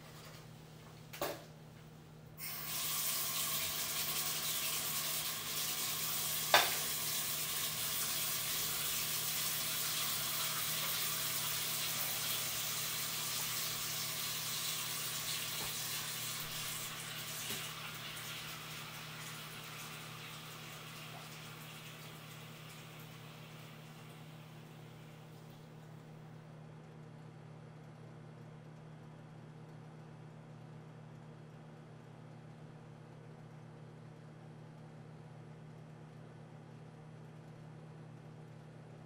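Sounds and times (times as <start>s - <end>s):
faucet running into sink: 2.4s - 24.5s.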